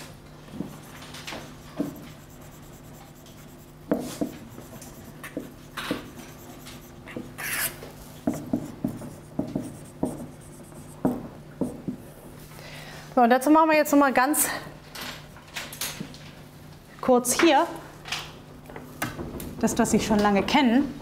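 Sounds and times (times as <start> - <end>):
steady low hum: 0.0 - 13.2
marker writing on whiteboard: 0.6 - 11.8.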